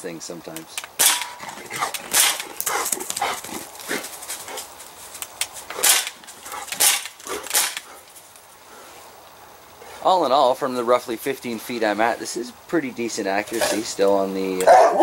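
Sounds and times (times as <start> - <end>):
dog barking: 14.6 - 15.0.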